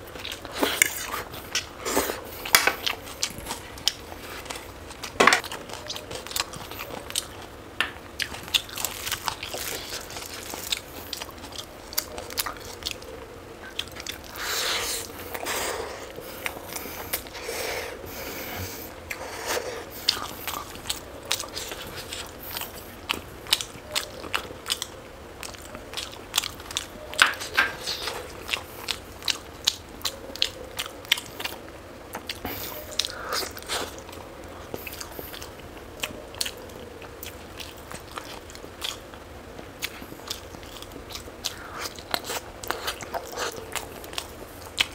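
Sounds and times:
crisp bites and chewing: 8.2s - 12.8s.

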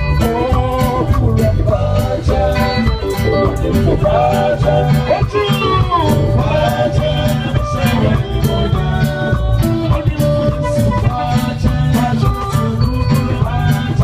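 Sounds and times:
gospel band through loudspeakers: 0.0s - 14.0s
steady drum beat: 0.0s - 14.0s.

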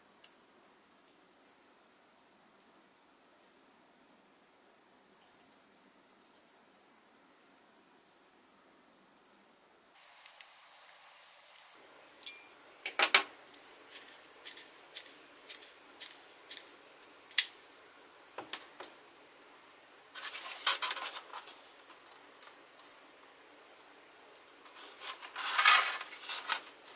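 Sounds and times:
small hard parts clicking: 12.2s - 16.7s.

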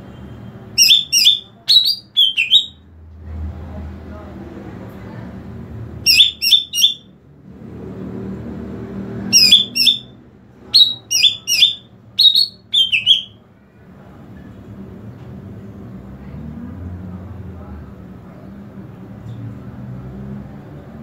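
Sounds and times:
low background murmur: 0.0s - 7.1s, 9.5s - 21.0s
bird singing high quick notes: 0.8s - 2.8s, 6.1s - 7.0s, 9.3s - 10.1s, 10.8s - 13.4s.

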